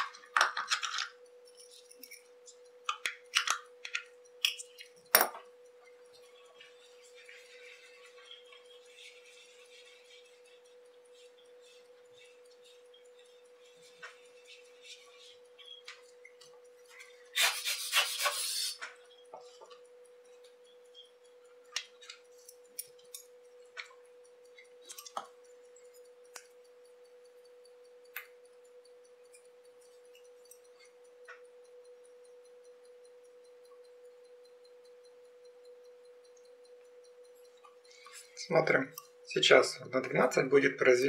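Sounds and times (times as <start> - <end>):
small clicks and handling noises: 0.0 - 9.1, 18.1 - 26.6
faint steady hum: 0.0 - 41.0.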